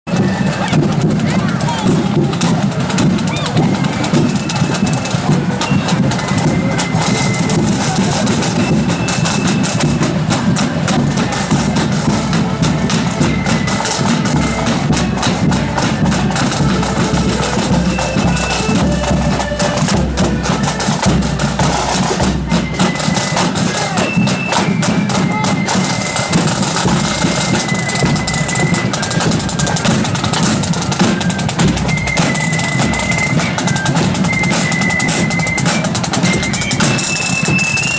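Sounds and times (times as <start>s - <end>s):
heavy bass drum: 0.1s - 25.5s
high melody notes: 0.1s - 37.9s
side drum rolls: 0.1s - 37.9s.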